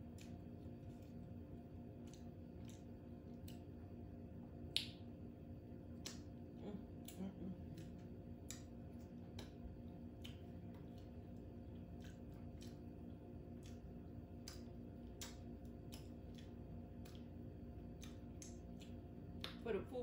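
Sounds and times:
low hum: 0.0 - 20.0
wet mouth clicks chewing: 5.9 - 19.6.

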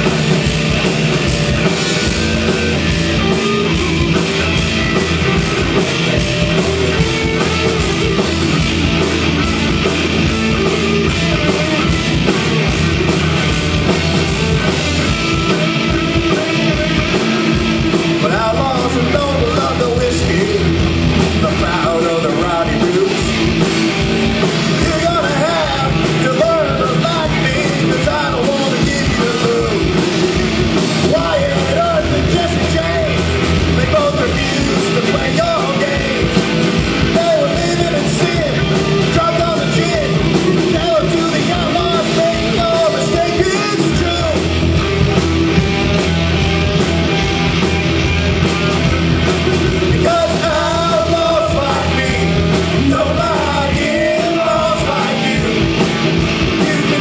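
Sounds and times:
live rock band playing: 0.0 - 57.0
person singing: 15.1 - 44.6, 49.6 - 57.0.

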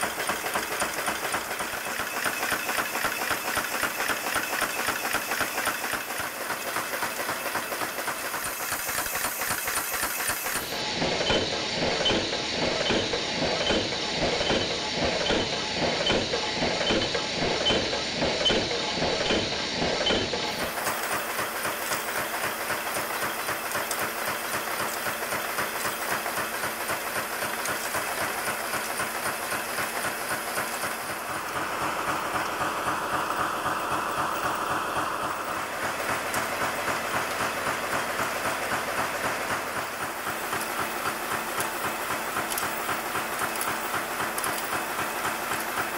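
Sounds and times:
machinery hiss: 0.0 - 45.9
nail-making machinery clattering: 0.0 - 45.9
regular mechanical ticking: 35.2 - 45.9.

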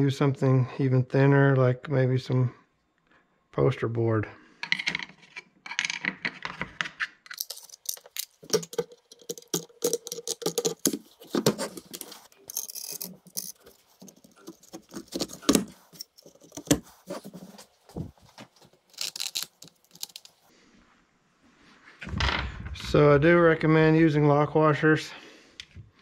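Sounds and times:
metallic clicks and rattles: 7.3 - 16.8, 18.9 - 20.4.

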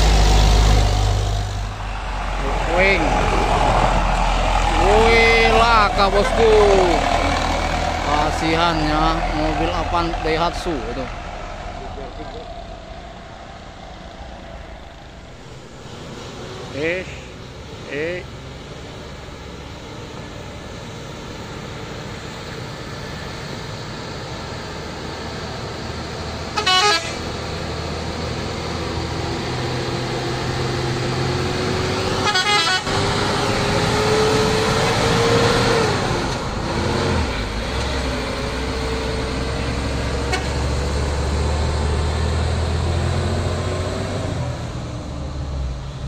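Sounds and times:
truck diesel engine pulling past: 0.0 - 46.0
truck horn blasts: 5.0 - 7.5, 26.5 - 27.3, 32.0 - 33.1, 40.2 - 40.8.

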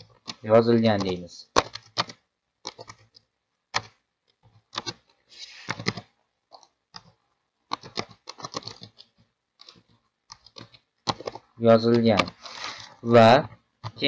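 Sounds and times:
keyboard typing clicks: 0.3 - 3.1, 4.7 - 5.0.

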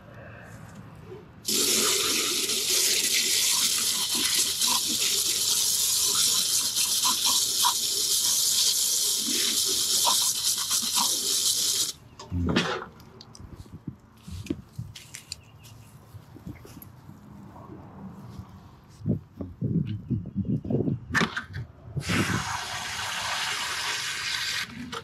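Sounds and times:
hose water spraying: 1.4 - 12.0, 22.0 - 25.0
water spattering on sheet metal: 1.5 - 12.0.

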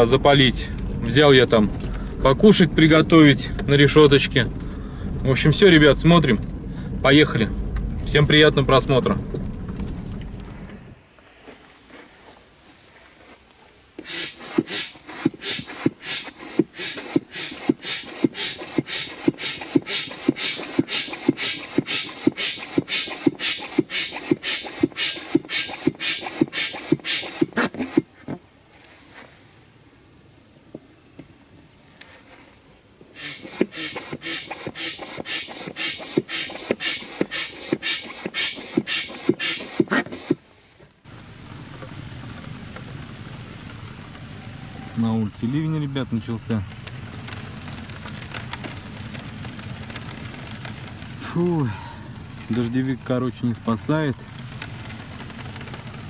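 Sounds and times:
foot pump puffing air: 14.0 - 28.3, 33.2 - 40.5.

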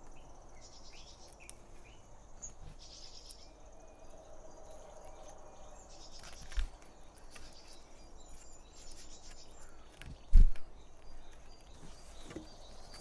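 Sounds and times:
insects chirring: 0.0 - 13.0.

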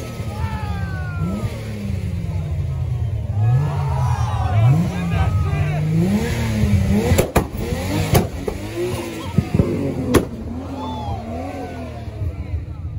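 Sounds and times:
car engine revving: 0.0 - 12.8
exhaust cracks: 6.0 - 10.8.

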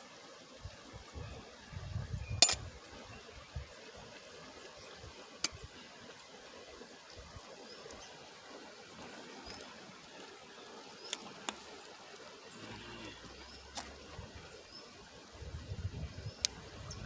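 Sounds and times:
metal coffee pot and cup clinking: 2.4 - 2.7.

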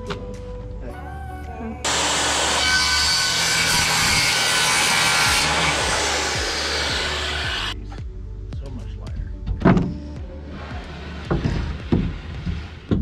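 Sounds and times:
circular saw cutting plywood: 1.9 - 7.8, 10.5 - 13.0.

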